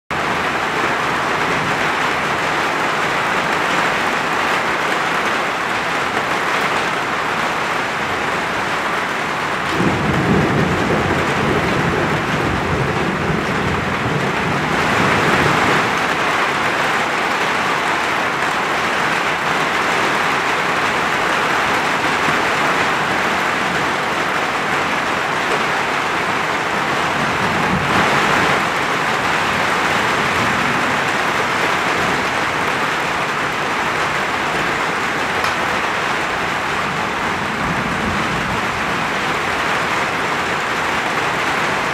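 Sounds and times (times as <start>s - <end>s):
heavy rain falling: 0.1s - 41.9s
rolling thunder: 9.4s - 16.6s, 26.6s - 41.0s.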